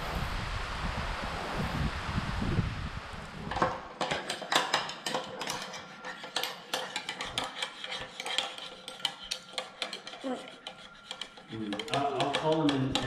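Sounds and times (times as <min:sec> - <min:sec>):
metal utensils clinking on ceramic bowl: 0:04.0 - 0:13.0.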